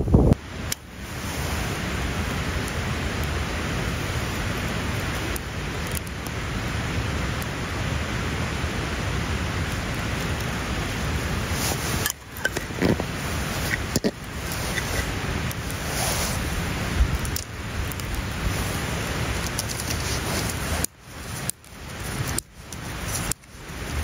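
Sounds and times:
steady rushing noise: 0:00.0 - 0:24.0.

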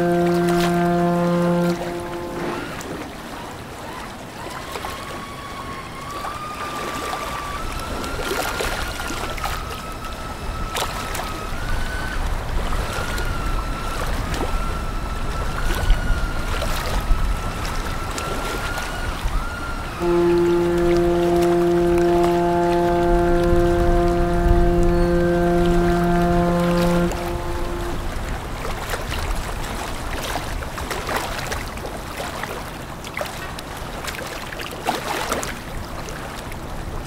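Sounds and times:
high whine: 0:00.0 - 0:03.0, 0:20.0 - 0:28.2
light splashes: 0:00.0 - 0:03.4, 0:15.8 - 0:28.4
ship engine rumble: 0:00.0 - 0:03.4, 0:19.1 - 0:28.7
water rushing at bow: 0:00.0 - 0:37.0.

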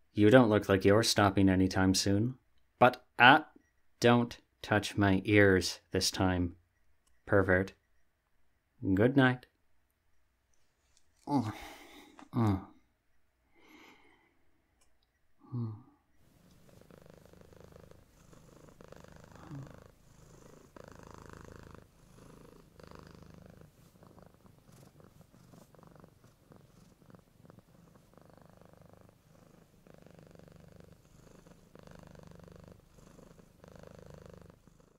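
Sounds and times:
soft purring: 0:15.4 - 0:34.9.

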